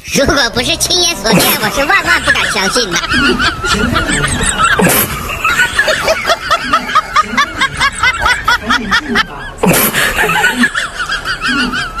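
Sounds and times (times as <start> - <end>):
background music: 0.0 - 8.7
high-pitched giggling: 1.2 - 12.0.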